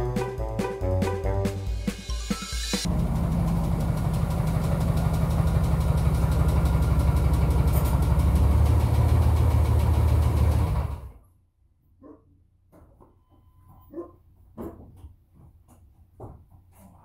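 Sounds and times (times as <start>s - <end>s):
truck engine running: 2.9s - 11.2s.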